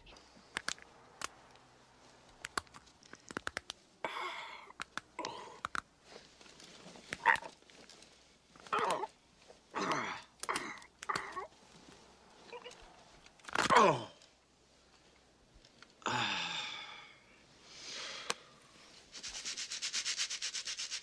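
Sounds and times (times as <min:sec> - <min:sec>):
sharp clicks: 0:02.3 - 0:03.8, 0:04.7 - 0:05.9.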